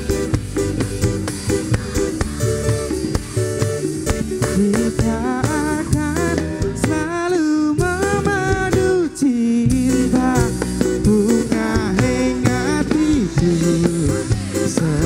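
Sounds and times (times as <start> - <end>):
band with guitars and drums: 0.0 - 15.0
man singing: 4.4 - 15.0.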